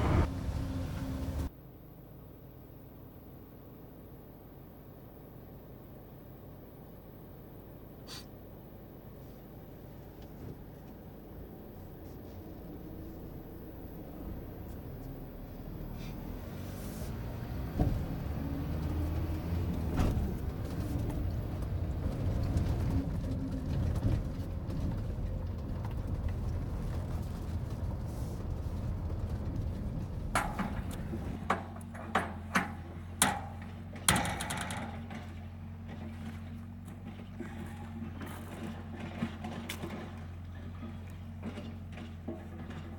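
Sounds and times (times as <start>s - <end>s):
truck engine and tyre rumble: 0.0s - 42.9s
truck bumps: 17.1s - 42.9s.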